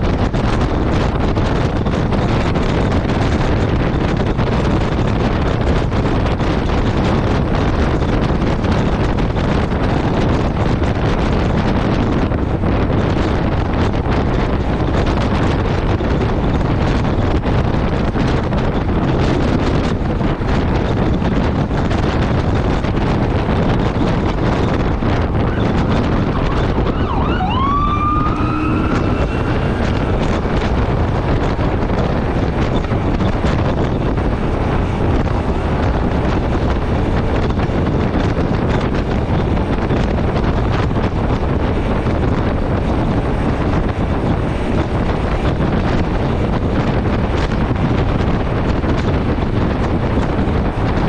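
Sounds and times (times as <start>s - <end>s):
road noise: 0.0s - 51.0s
wind rush on microphone: 0.0s - 51.0s
rising siren-like tone: 24.9s - 31.0s.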